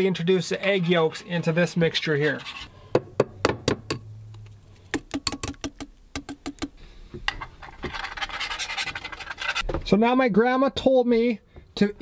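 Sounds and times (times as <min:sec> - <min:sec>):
whisk scraping around pan: 0:00.2 - 0:02.8, 0:07.4 - 0:09.6.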